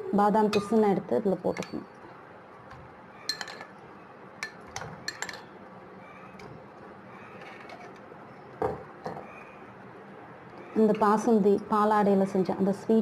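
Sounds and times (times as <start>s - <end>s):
spoon clinking against glass: 3.3s - 3.7s, 4.4s - 5.5s.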